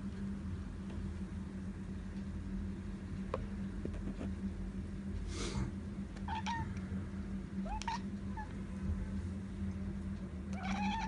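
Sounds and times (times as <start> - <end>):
steady low hum: 0.0 - 11.0
cat chirping: 6.3 - 6.7, 7.6 - 8.5, 10.6 - 11.0.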